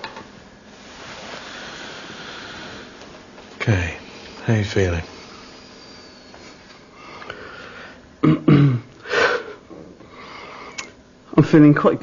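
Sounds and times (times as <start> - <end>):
long breathy exhale: 1.3 - 3.0.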